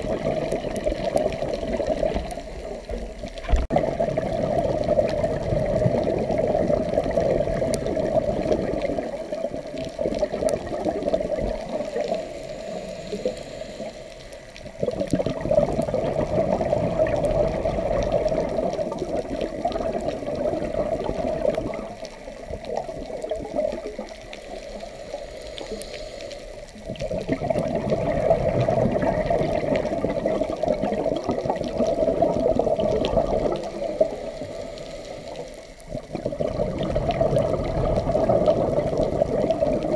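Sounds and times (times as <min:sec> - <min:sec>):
muffled underwater bubbles rumbling: 0:00.0 - 0:39.9.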